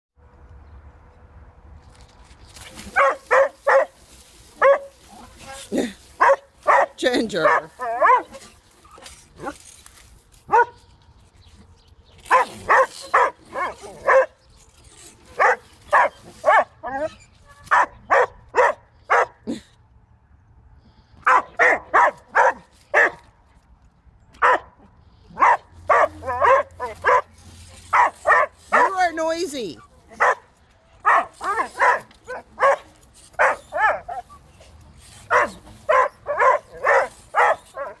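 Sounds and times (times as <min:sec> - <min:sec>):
dog barking: 0:03.0 - 0:04.0, 0:04.6 - 0:04.9, 0:06.2 - 0:08.4, 0:10.5 - 0:10.8, 0:12.3 - 0:14.3, 0:15.4 - 0:16.7, 0:17.7 - 0:19.4, 0:21.2 - 0:23.2, 0:24.4 - 0:24.7, 0:25.4 - 0:27.3, 0:27.9 - 0:29.0, 0:30.2 - 0:30.4, 0:31.0 - 0:34.2, 0:35.3 - 0:38.0.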